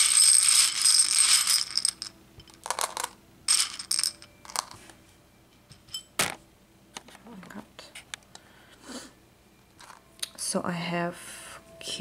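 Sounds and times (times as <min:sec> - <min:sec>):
small hard pieces clattering: 0:00.0 - 0:04.8.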